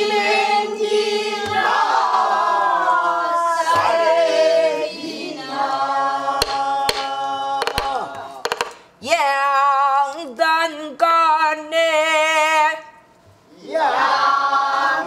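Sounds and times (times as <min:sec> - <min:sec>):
voices singing in unison: 0:00.0 - 0:08.6, 0:12.2 - 0:15.0
barrel drum struck with stick: 0:06.4 - 0:08.9.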